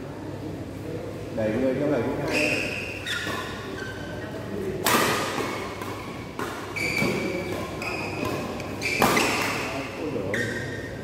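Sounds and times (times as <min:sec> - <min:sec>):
shoes squeaking on court: 0:02.2 - 0:11.0
rackets hitting shuttlecock: 0:04.7 - 0:10.6.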